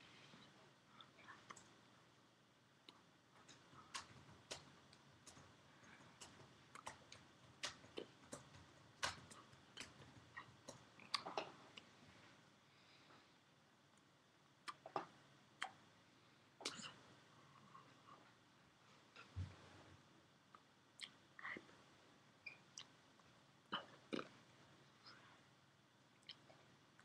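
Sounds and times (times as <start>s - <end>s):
hands clicking and tapping near microphone: 2.9s - 11.9s.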